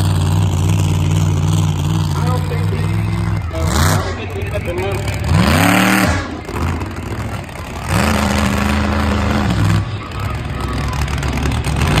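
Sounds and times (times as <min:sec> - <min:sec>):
monster truck engine revving: 0:00.0 - 0:12.0.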